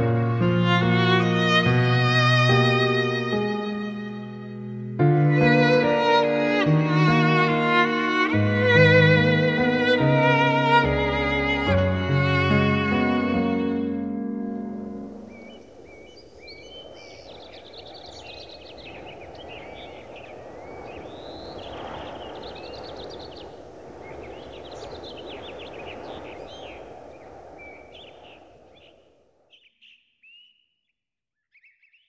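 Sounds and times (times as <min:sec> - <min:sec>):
birds chirping and trilling: 0:14.6 - 0:30.7, 0:31.4 - 0:32.0.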